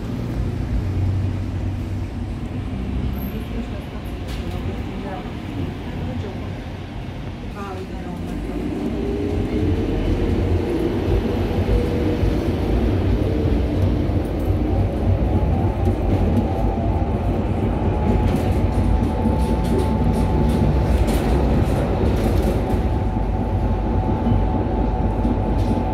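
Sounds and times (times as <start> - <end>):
tram wheels rumbling on rails: 0.0 - 25.9
wheels clicking on track: 7.2 - 25.9
tram motor whine: 8.1 - 25.9.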